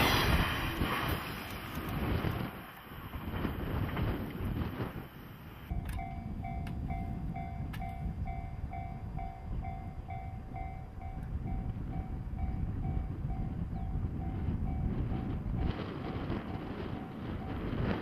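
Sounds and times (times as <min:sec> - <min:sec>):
wind rumble on microphone: 0:00.0 - 0:18.0
level crossing warning bell: 0:05.7 - 0:15.8, 0:16.6 - 0:17.9.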